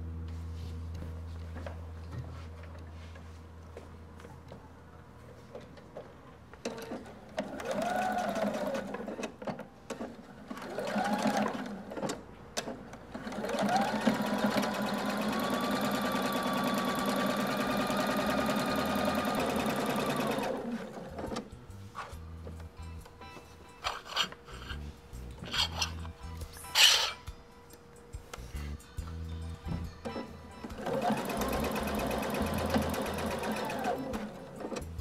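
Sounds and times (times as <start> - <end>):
sewing machine motor whine: 7.4 - 9.2, 10.6 - 12.0, 13.2 - 21.1.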